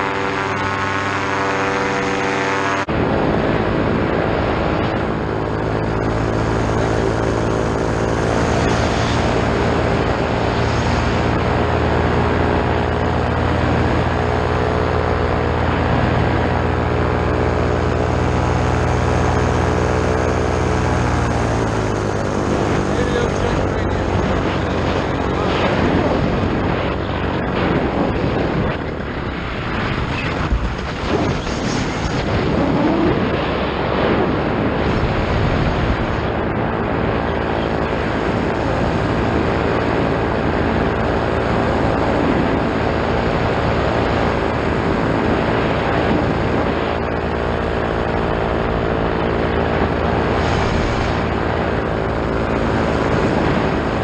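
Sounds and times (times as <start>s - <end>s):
paramotor engine and propeller: 0.0s - 54.0s.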